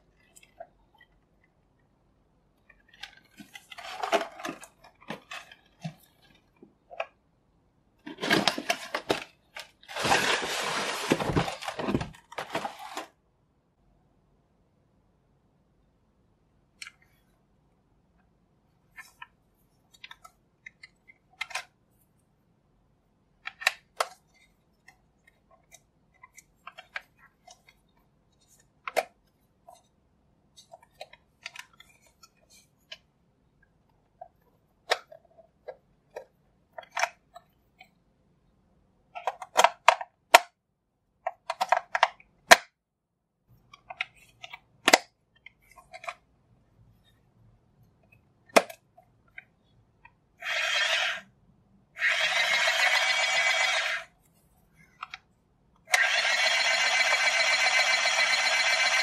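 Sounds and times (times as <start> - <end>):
plastic toy clicking and knocking: 39.1 - 40.6, 41.3 - 42.8, 55.9 - 59.0.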